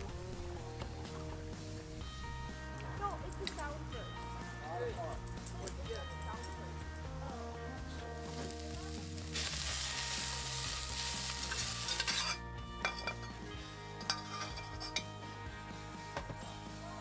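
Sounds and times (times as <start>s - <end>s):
bacon sizzling in a skillet: 7.4s - 12.4s
metal utensils clinking on pans: 10.9s - 15.2s
metal spoon stirring: 11.4s - 13.4s, 14.0s - 15.1s.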